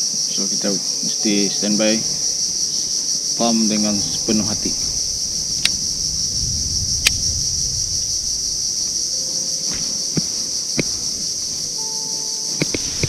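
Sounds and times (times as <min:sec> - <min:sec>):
insects buzzing: 0:00.0 - 0:13.0
low rumble: 0:01.9 - 0:11.8
sharp clicks: 0:04.6 - 0:05.8, 0:08.3 - 0:11.8.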